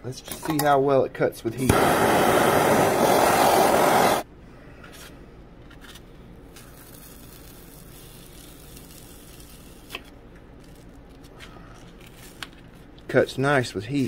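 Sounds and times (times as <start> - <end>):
gas torch hissing: 1.6 - 4.3
hot blade scraping through foam: 1.7 - 4.2.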